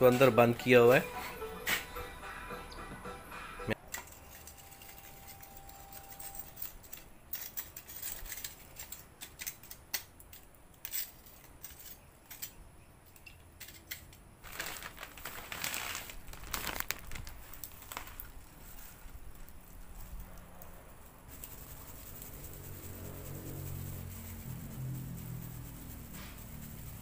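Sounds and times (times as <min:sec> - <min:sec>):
rustling and crinkling: 0:13.6 - 0:27.0.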